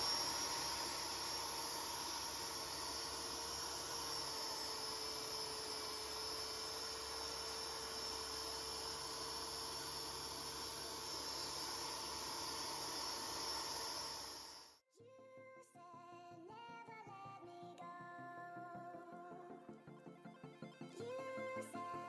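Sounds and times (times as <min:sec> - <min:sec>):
rotary polisher whining: 0:00.0 - 0:14.8.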